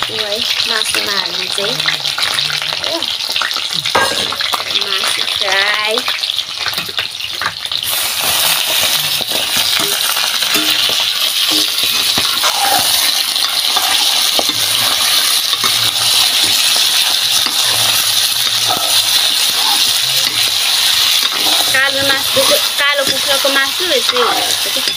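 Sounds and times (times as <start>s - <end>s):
meat sizzling in hot oil: 0.0s - 24.9s
metal ladle stirring: 7.9s - 24.9s.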